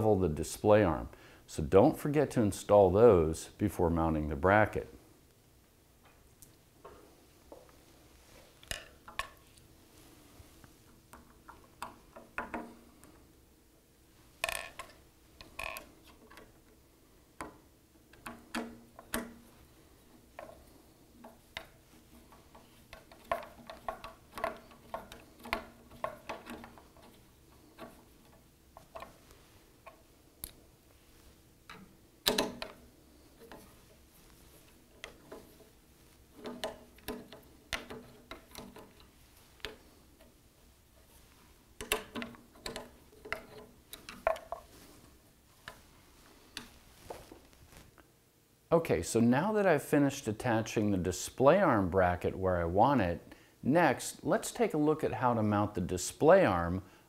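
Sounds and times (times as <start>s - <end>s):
small metal clicks: 36.4s - 40.4s, 41.8s - 44.7s.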